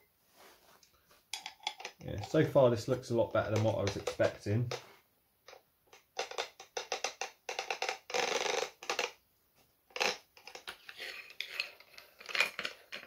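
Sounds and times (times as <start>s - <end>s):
small tool parts clattering: 9.9s - 13.0s.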